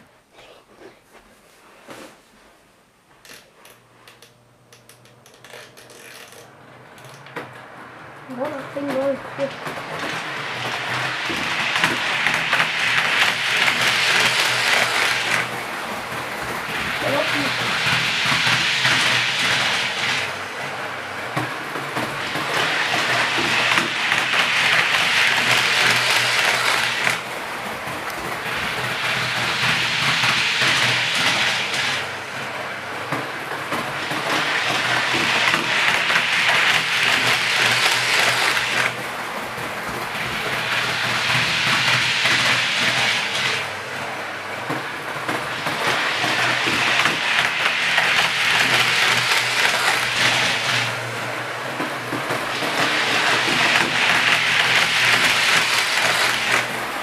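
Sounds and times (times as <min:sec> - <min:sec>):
model train whirring rattle: 0:03.2 - 0:57.0.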